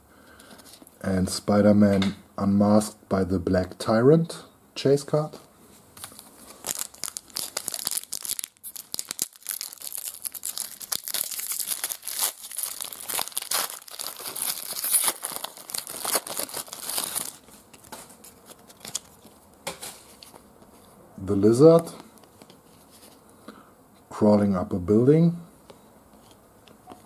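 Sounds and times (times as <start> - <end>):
foil wrapper crinkling and tearing: 6.0 - 20.4.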